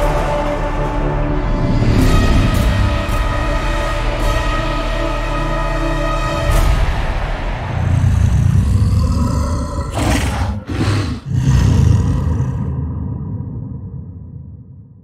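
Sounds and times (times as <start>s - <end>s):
giant ape roaring: 7.8s - 13.2s.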